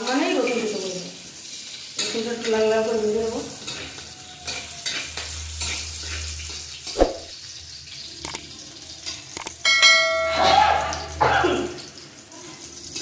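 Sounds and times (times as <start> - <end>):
garlic sizzling in oil: 0.0 - 9.8, 10.6 - 13.0
metal spatula scraping a pan: 1.8 - 7.4.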